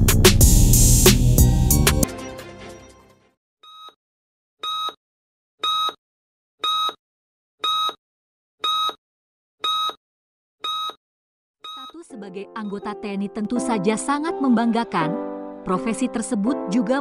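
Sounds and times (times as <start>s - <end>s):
intro music: 0.0s - 3.0s
short electronic beeps: 7.6s - 8.0s, 8.6s - 9.0s, 9.6s - 10.0s, 10.6s - 11.0s, 11.7s - 12.0s.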